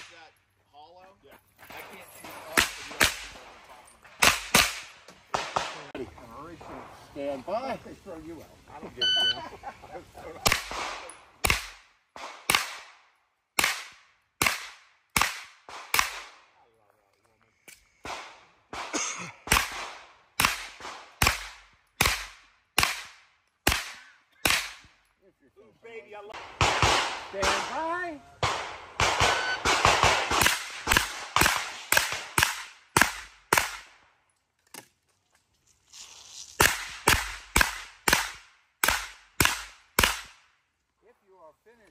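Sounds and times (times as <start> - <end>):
pistol shots: 2.5 - 3.5, 4.2 - 5.9, 10.4 - 13.0, 13.6 - 16.4, 18.0 - 24.9, 26.4 - 34.0, 36.6 - 40.5.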